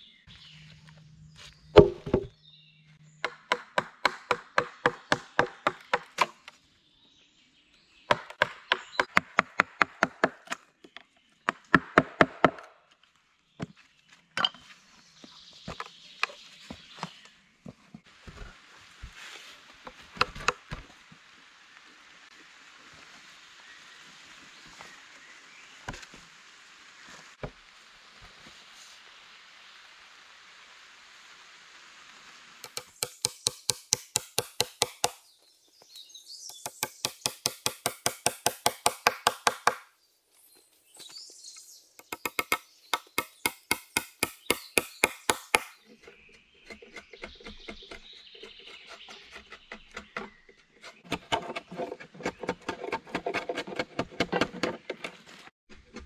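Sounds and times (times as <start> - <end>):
rapid knocks on wood: 1.8 - 2.3
blade carving and scraping wood: 32.6 - 35.3, 36.5 - 39.8, 42.0 - 56.0.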